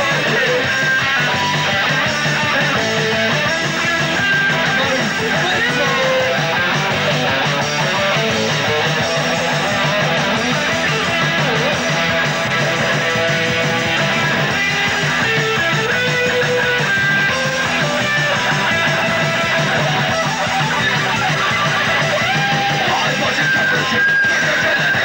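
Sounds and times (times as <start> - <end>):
punk rock band playing: 0.0 - 25.0.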